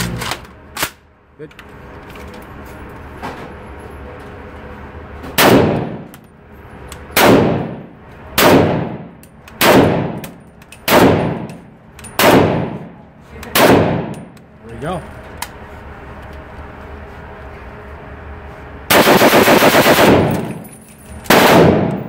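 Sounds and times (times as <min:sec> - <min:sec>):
rifle shots echoing indoors: 0:05.4 - 0:06.1, 0:07.1 - 0:14.3, 0:18.9 - 0:20.6, 0:21.3 - 0:22.0.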